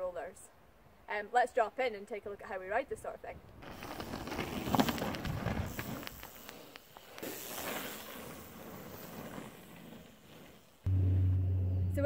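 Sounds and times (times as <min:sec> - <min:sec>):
bike tyres crunching on gravel: 0:03.6 - 0:10.8.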